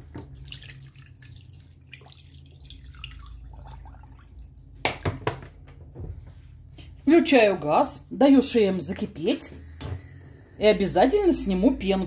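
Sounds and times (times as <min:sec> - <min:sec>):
water pouring into a pot: 0:00.2 - 0:04.7.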